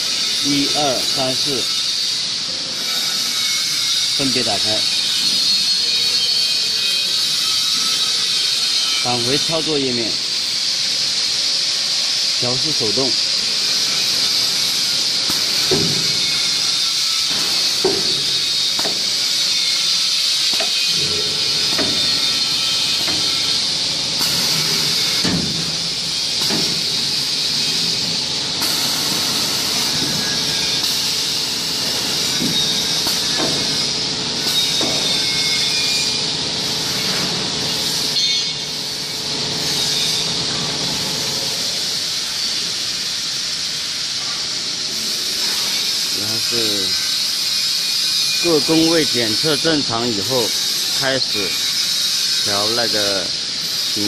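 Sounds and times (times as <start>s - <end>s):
machine steady hiss: 7.8s - 54.0s
machine knocks and clicks: 33.4s - 33.7s.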